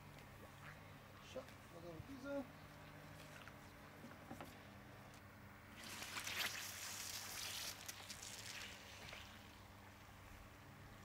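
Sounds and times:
water splashing and bubbling: 5.8s - 9.7s.

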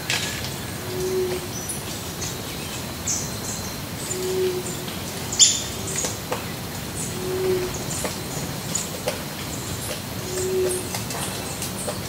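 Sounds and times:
low drawn-out bird call: 7.1s - 8.1s.

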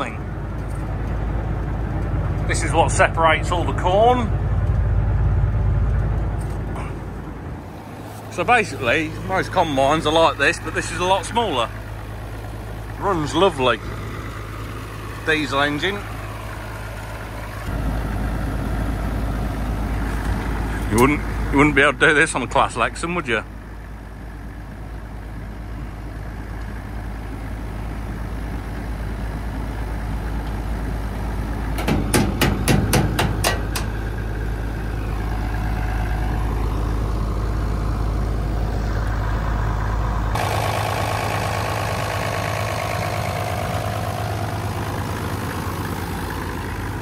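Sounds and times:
combine harvester diesel engine: 0.0s - 47.0s
sharp knocks: 31.8s - 34.0s.

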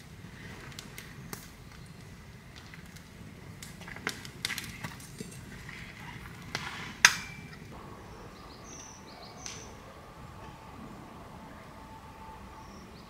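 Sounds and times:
high bird chirps: 8.0s - 10.6s.

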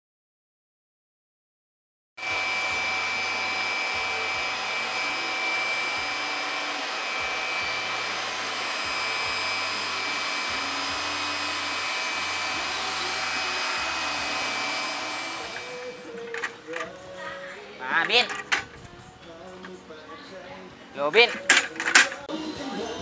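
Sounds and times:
machine rushing noise: 2.2s - 16.8s
high whine: 2.2s - 17.0s.

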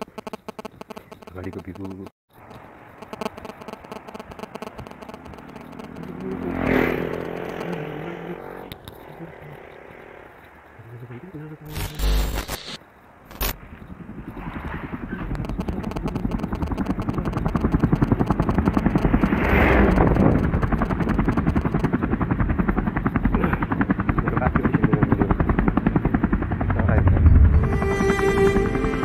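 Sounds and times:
motorcycle engine running: 3.7s - 10.8s, 14.0s - 29.0s
rush of noise: 14.4s - 22.5s.

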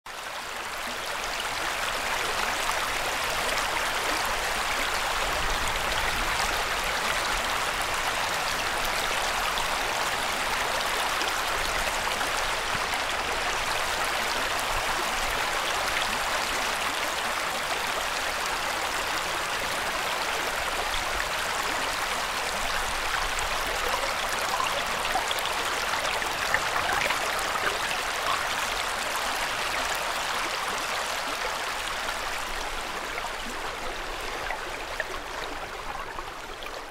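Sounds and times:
river water running over stones: 0.1s - 36.9s.

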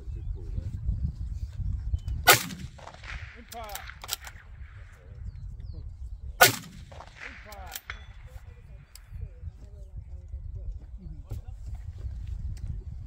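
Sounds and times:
rifle shots with echo: 2.2s - 5.2s, 6.4s - 9.2s.

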